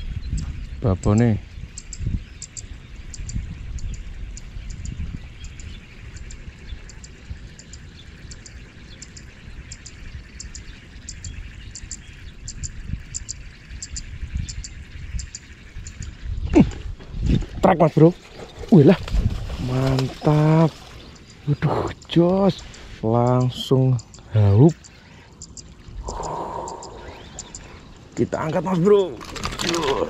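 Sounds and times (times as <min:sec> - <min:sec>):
very high chirps in pairs: 0:22.6 - 0:28.1.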